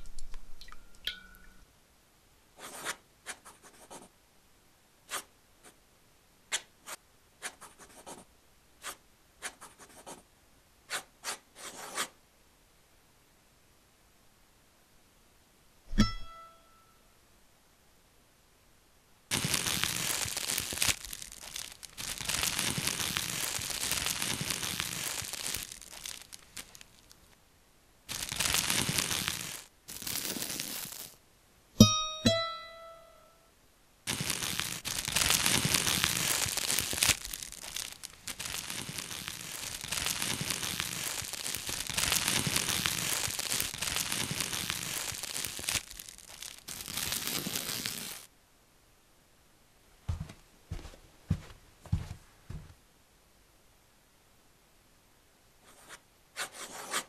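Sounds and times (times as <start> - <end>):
scratchy crinkling noise: 0.0 - 0.6, 2.6 - 4.1, 6.5 - 10.2, 19.3 - 27.4, 28.1 - 31.2, 34.1 - 48.3
plucked notes: 31.8 - 33.4.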